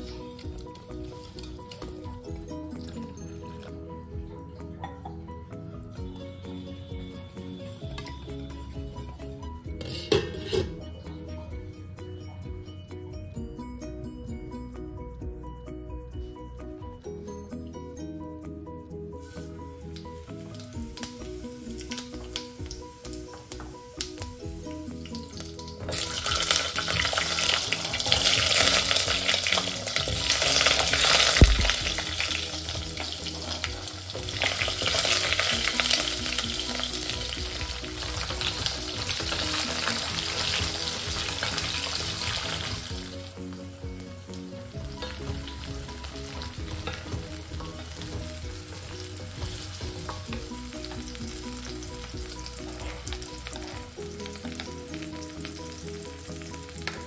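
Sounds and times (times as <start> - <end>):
food sizzling in hot oil: 0.0 - 3.3, 19.2 - 57.0
spatula stirring: 9.2 - 10.7.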